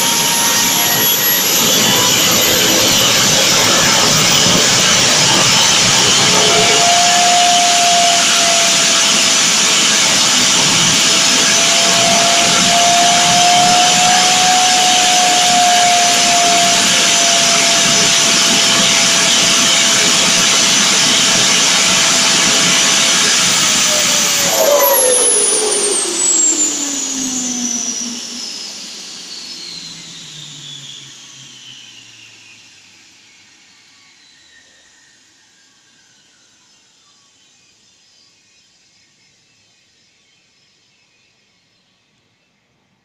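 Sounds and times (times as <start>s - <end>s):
jet engine spooling down: 0.0s - 33.4s
jet engine hiss and whine: 0.0s - 37.0s.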